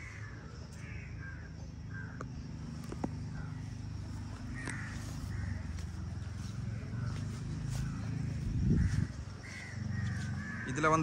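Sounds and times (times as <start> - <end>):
crows cawing: 0.0 - 2.4, 3.0 - 11.0
steady low rumble: 1.3 - 10.6.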